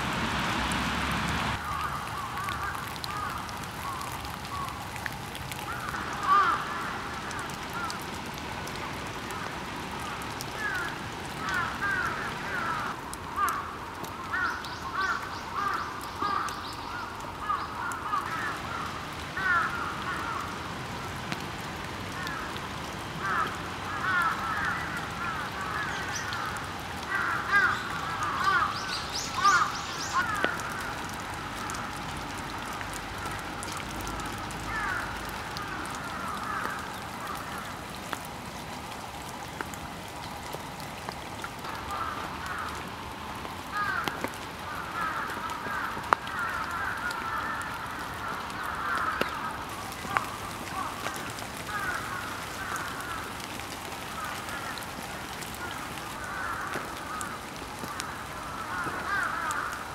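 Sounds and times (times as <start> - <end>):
wild birds calling: 9.3 - 20.6, 23.2 - 38.0, 43.7 - 59.9.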